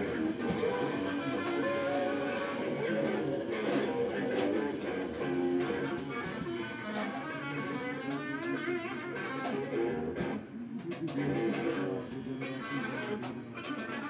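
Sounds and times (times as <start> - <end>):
electric guitar playing: 0.0 - 14.0.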